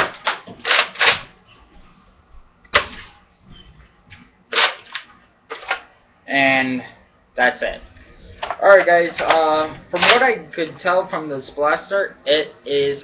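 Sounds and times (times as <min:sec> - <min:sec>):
toy blaster plastic clacks: 0:00.0 - 0:01.2.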